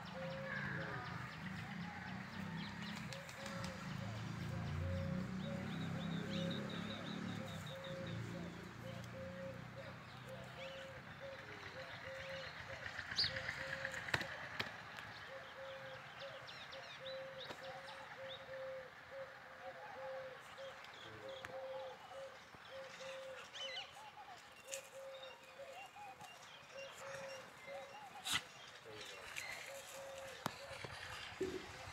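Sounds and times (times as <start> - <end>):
bird hooting: 0.0 - 1.1, 6.4 - 14.4, 15.2 - 23.8.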